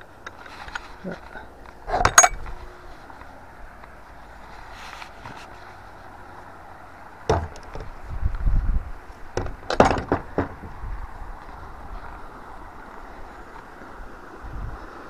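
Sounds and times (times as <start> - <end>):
gate clicks and knocks: 9.4 - 10.7.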